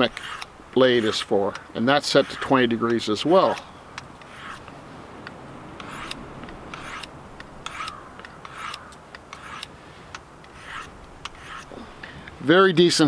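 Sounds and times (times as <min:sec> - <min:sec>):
knife blade scraping on ceramic hone: 0:00.0 - 0:04.7, 0:05.8 - 0:09.7, 0:10.4 - 0:11.8.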